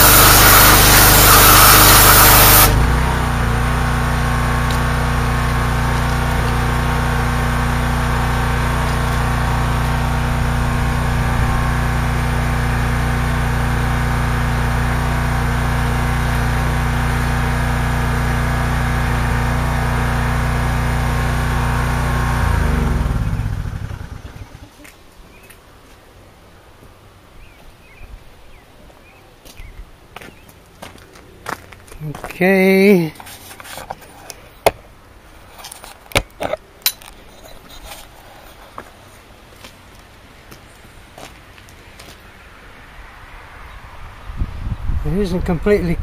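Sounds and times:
pressure washer spray on metal: 0:00.0 - 0:02.9
small gas engine running: 0:00.0 - 0:24.8.

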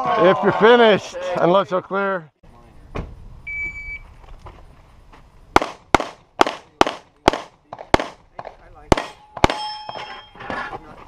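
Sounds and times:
pistol shots: 0:05.6 - 0:09.7
ringing tone: 0:09.1 - 0:10.5.

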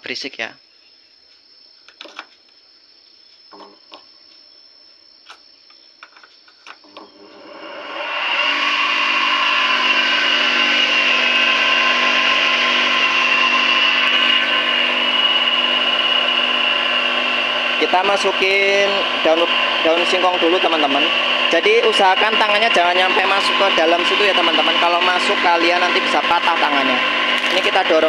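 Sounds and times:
electric motor whining: 0:06.7 - 0:28.0.

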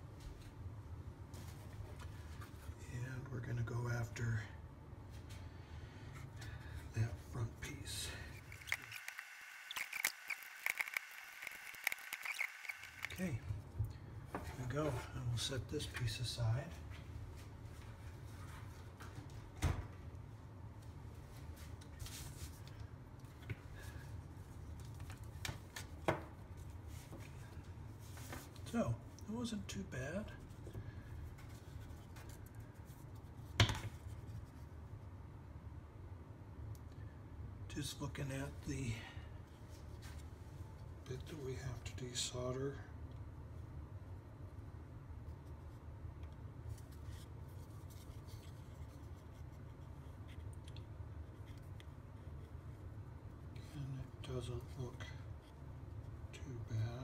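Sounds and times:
low steady hum: 0:00.0 - 0:57.0
circuit board handling noise: 0:08.4 - 0:13.2
small parts clicking and tapping: 0:08.4 - 0:13.2.

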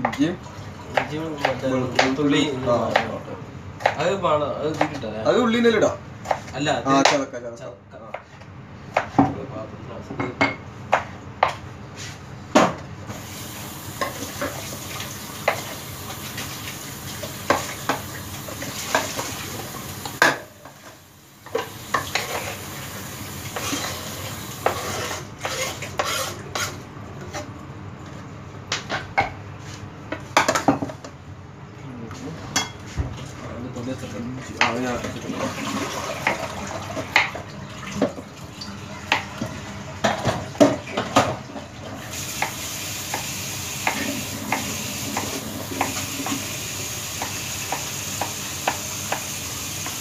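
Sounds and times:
knife chopping on cutting board: 0:01.0 - 0:02.2, 0:42.4 - 0:46.4, 0:47.2 - 0:50.0
cutting board sliding on counter: 0:23.5 - 0:26.8
scraping food off board: 0:24.6 - 0:26.8.

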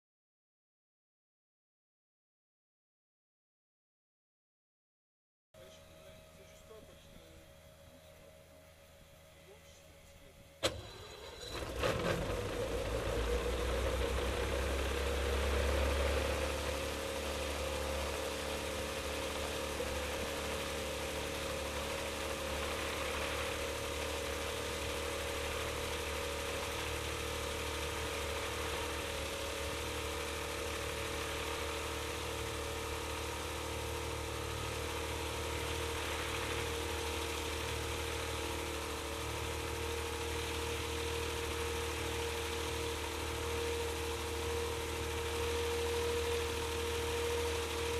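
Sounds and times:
light aircraft engine idling: 0:05.6 - 0:47.9.

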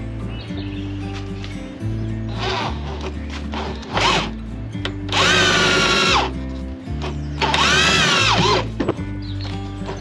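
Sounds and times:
electric drill boring into steel: 0:05.1 - 0:06.3, 0:07.4 - 0:08.7.

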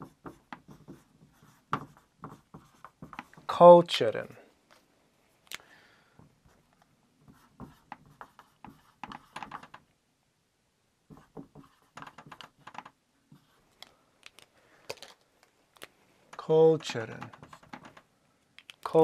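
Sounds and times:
marker squeaking on whiteboard: 0:00.0 - 0:03.5, 0:07.2 - 0:09.8, 0:11.1 - 0:13.6, 0:16.7 - 0:18.0.

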